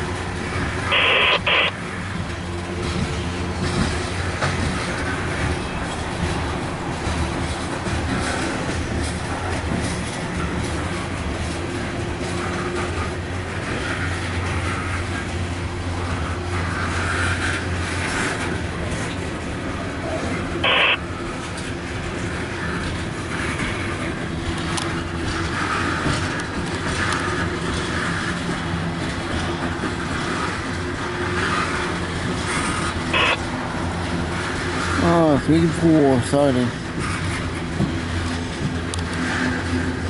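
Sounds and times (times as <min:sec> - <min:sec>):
steel wheels rumbling on rail: 0:00.0 - 0:40.0.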